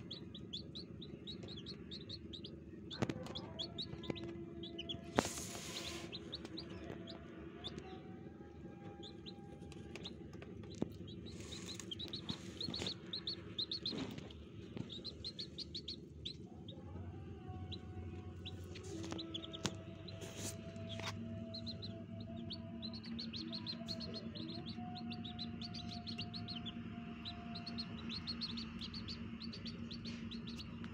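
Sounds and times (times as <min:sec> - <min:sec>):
chicks peeping: 0:00.0 - 0:30.9.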